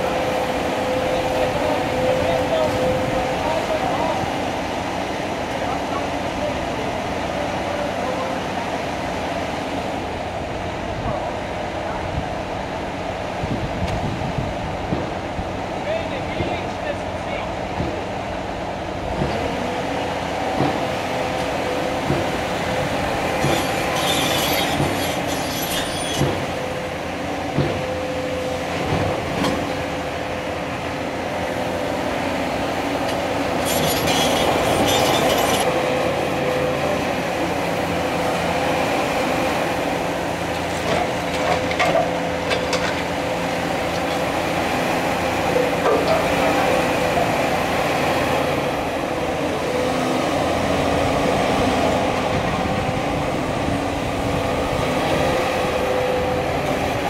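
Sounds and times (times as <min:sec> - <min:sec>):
excavator engine and hydraulics: 0:00.0 - 0:57.0
high-pitched screeching: 0:23.6 - 0:26.2, 0:33.6 - 0:35.7.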